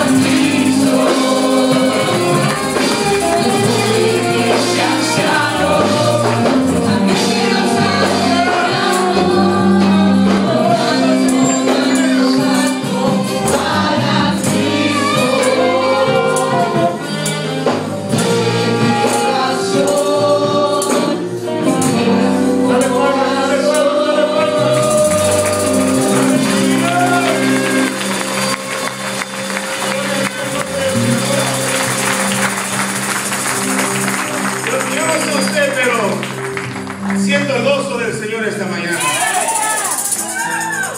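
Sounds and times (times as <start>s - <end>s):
person singing: 0.0s - 28.9s
drums: 0.0s - 37.3s, 38.9s - 40.9s
electric guitar: 0.0s - 38.2s
bass: 0.0s - 40.9s
steady percussion: 0.0s - 40.9s.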